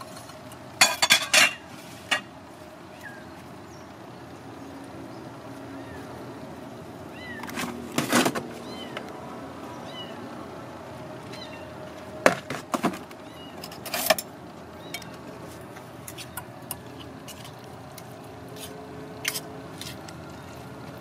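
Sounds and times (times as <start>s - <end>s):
ceramic plate and utensils clinking: 0.0s - 2.3s
street background noise: 0.0s - 21.0s.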